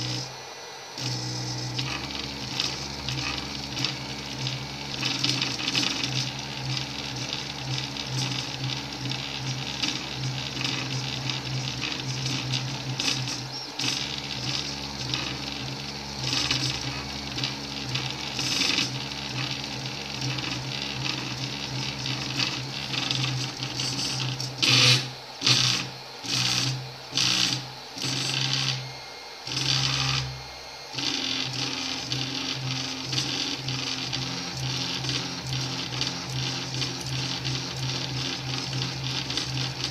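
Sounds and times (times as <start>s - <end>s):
stepper motors whining: 0.0s - 39.9s.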